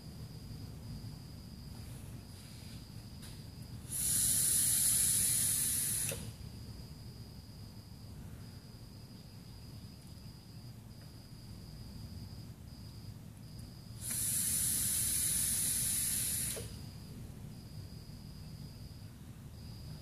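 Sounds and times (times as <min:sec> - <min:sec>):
vaporizer coils sizzling: 0:03.2 - 0:06.4, 0:14.0 - 0:17.1.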